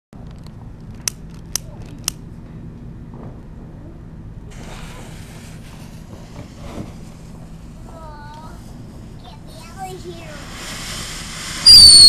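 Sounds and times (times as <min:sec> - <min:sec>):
steady low hum: 0:00.2 - 0:11.7
faint hiss: 0:04.4 - 0:12.0.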